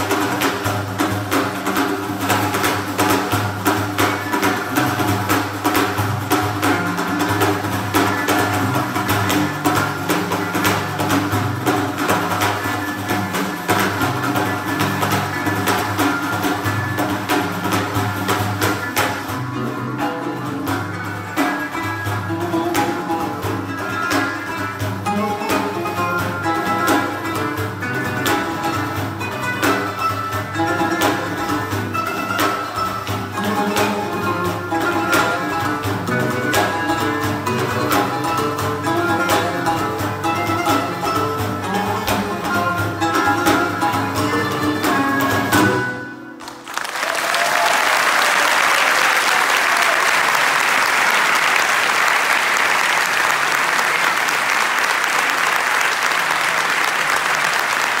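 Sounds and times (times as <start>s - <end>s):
frame drum beating: 0.0s - 46.0s
plucked lutes: 0.0s - 46.7s
string orchestra: 0.0s - 47.7s
audience applauding: 46.4s - 58.0s.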